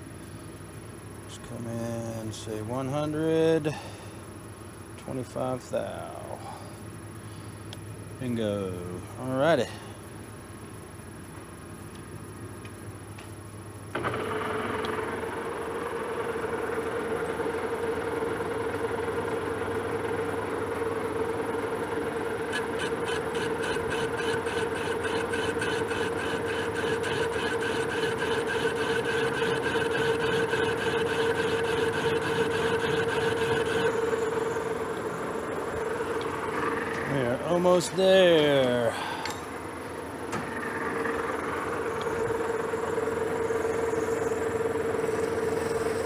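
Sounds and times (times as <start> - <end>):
lathe switching on: 13.9 - 37.2, 40.2 - 46.0
metal lathe whining: 14.0 - 39.4, 40.3 - 46.0
rapid even ticking: 22.4 - 37.3.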